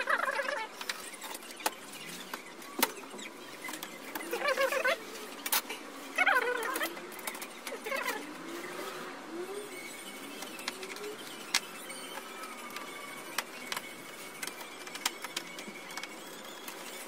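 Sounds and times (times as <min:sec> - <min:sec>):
short wavering pitched sounds: 0:00.0 - 0:00.8, 0:06.1 - 0:13.3.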